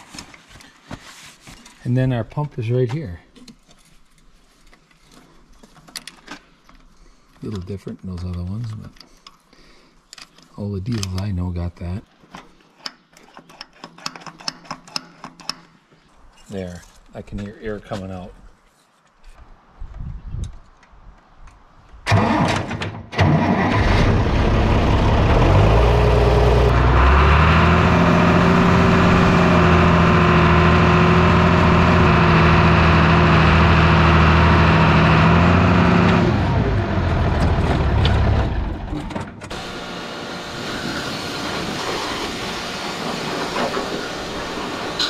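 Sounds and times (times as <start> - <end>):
diesel tractor engine: 22.1 - 22.6, 23.2 - 45.0.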